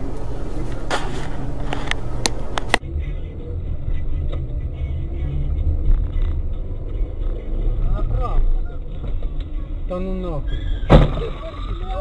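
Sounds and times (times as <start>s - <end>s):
car engine and road noise: 0.0s - 12.0s.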